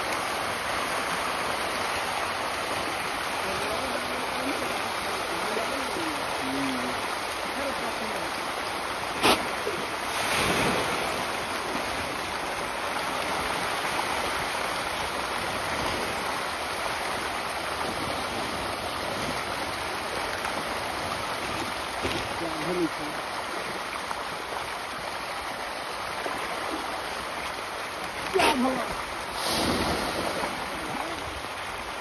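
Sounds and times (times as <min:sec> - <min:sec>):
fish splashing at water surface: 0:09.2 - 0:11.4, 0:29.3 - 0:30.8.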